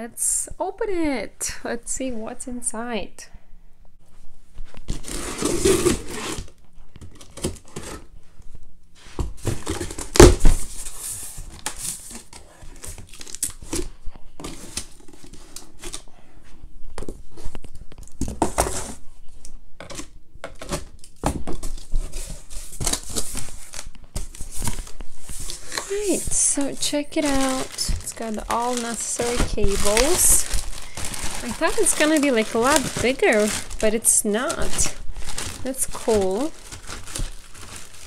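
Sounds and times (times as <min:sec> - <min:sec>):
packing tape tearing: 0:04.9 - 0:08.1, 0:09.4 - 0:10.7, 0:11.5 - 0:16.0, 0:19.8 - 0:38.0
plastic bags crinkling: 0:11.5 - 0:16.0, 0:20.6 - 0:38.0.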